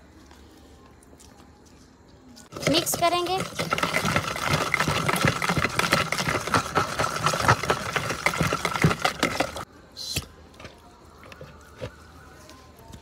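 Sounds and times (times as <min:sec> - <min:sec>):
metal utensil scraping plastic tub: 0:02.5 - 0:09.6.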